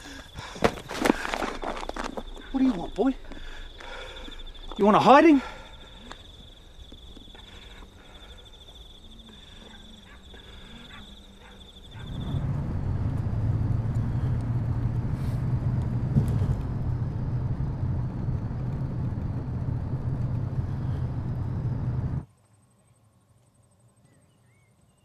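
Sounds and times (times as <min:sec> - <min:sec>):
high insect trill: 0:00.0 - 0:14.4
car engine rumble: 0:10.4 - 0:22.3
road noise inside car: 0:11.9 - 0:22.2.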